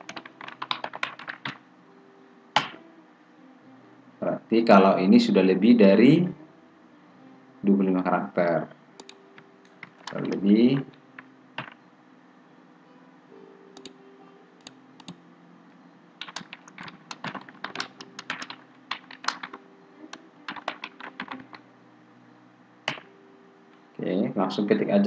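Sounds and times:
keyboard typing: 0.0 - 1.6, 2.6 - 2.8, 9.0 - 11.0, 11.6 - 11.8, 16.2 - 21.6, 22.9 - 23.1
faint steady hum: 0.0 - 25.0.

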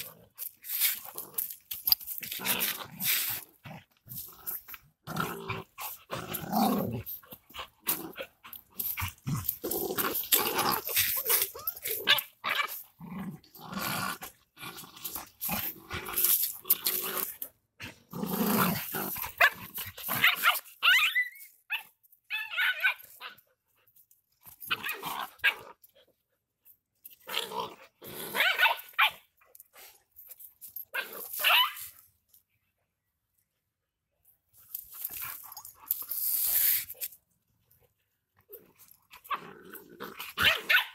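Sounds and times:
dogs growling: 2.2 - 20.3, 38.4 - 40.8.

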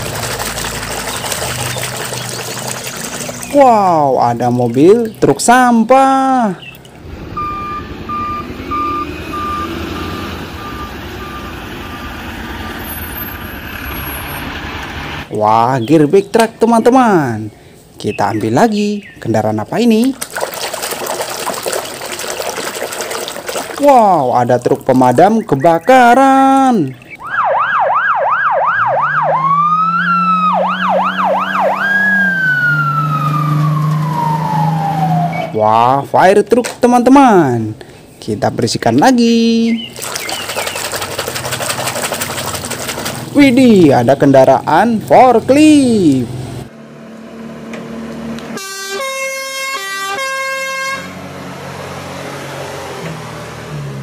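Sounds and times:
forklift engine humming: 6.6 - 15.3, 46.1 - 48.9
electronic siren yelping and wailing: 7.3 - 13.4, 27.1 - 35.9.

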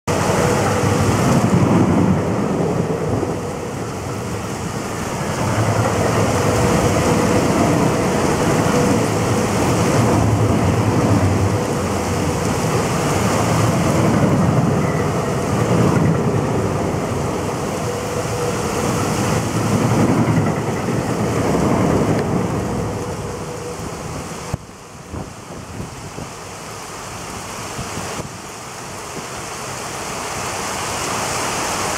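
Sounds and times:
heavy rain on pavement: 0.1 - 31.9
low rumble: 0.2 - 25.2.

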